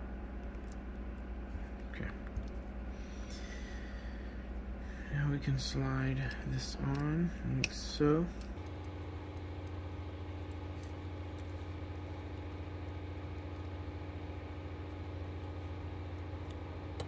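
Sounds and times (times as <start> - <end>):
steady low hum: 0.0 - 17.0
light clicks of small parts: 6.2 - 9.8.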